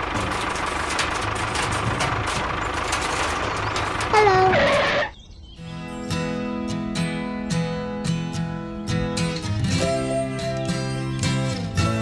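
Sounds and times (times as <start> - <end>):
tractor engine running: 0.0 - 5.2.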